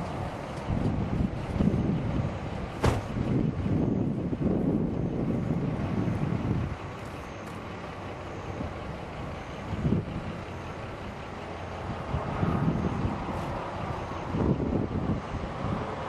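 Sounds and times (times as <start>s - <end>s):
wind buffeting microphone: 0.0s - 6.9s, 8.5s - 11.0s, 11.8s - 16.0s
low outdoor rumble: 0.0s - 16.0s.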